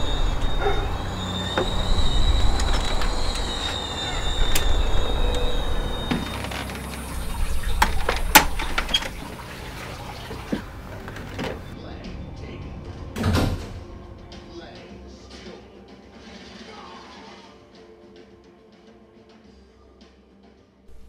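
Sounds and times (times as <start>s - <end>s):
high-pitched screeching drone: 0.0s - 11.8s
door handle and latch clicks: 1.6s - 9.4s.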